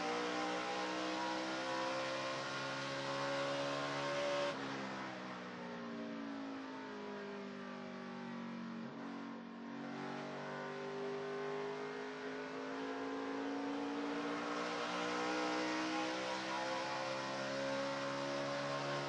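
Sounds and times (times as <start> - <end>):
racing engine accelerating: 0.0 - 4.6, 13.4 - 19.0.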